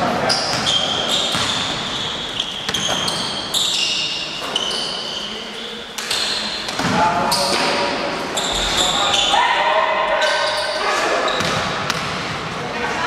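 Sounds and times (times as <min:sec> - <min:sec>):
shoes squeaking on gym floor: 0:00.2 - 0:09.4, 0:10.2 - 0:11.7
ball bouncing: 0:00.5 - 0:01.8, 0:02.4 - 0:03.4, 0:06.0 - 0:07.8, 0:11.4 - 0:12.4.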